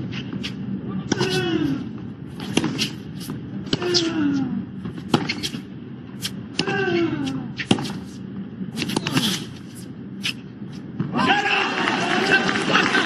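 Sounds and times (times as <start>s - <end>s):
racquets striking tennis ball: 1.1s - 4.2s, 4.8s - 11.2s.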